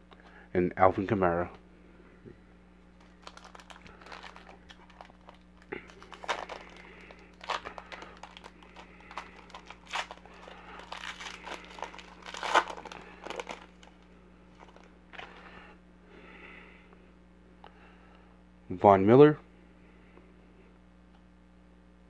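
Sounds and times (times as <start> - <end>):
foil wrapper crinkling and tearing: 3.0 - 15.3
cards rustling: 3.0 - 15.4.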